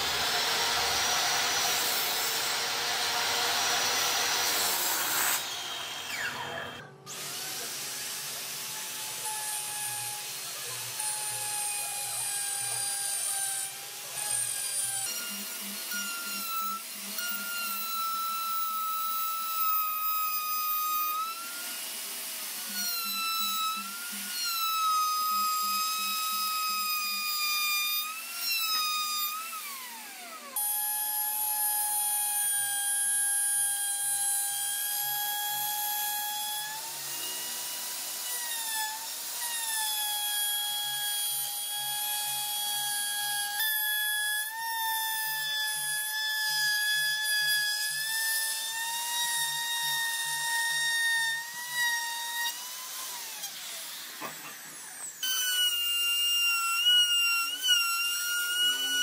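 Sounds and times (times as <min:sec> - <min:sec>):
router whining cutting wood: 0:00.0 - 0:59.0
motor winding down: 0:05.0 - 0:07.8.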